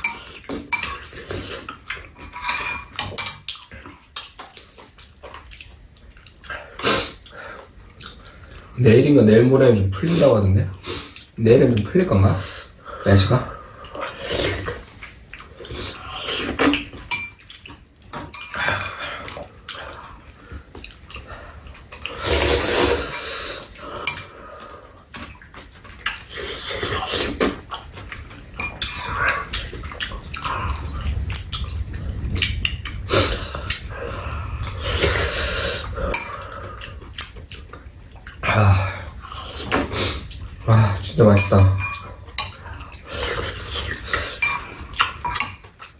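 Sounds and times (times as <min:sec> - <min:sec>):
spoons clinking against bowls: 0:00.0 - 0:01.2, 0:02.2 - 0:03.6, 0:17.0 - 0:17.5, 0:18.1 - 0:19.5, 0:24.0 - 0:24.4, 0:28.6 - 0:29.3, 0:36.1 - 0:36.4, 0:41.2 - 0:43.4, 0:44.1 - 0:45.8
slurping soup: 0:00.3 - 0:02.4, 0:13.5 - 0:17.0, 0:18.5 - 0:37.7, 0:38.4 - 0:40.9, 0:42.5 - 0:45.5.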